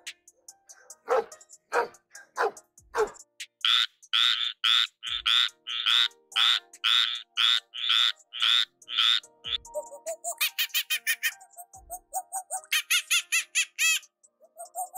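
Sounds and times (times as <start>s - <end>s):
frog croaking: 3.6s - 9.2s.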